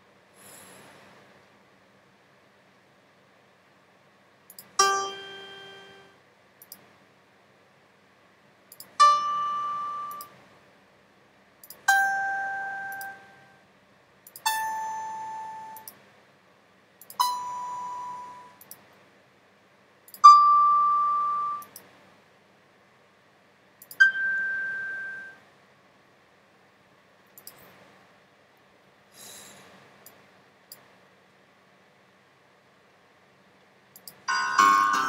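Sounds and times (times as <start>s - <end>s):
faint mouse click: 27.3s - 27.8s.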